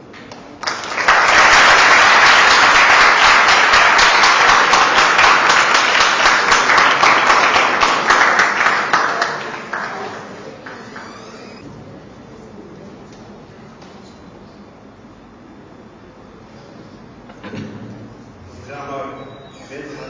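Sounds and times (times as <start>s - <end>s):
audience applauding: 0.2s - 11.6s.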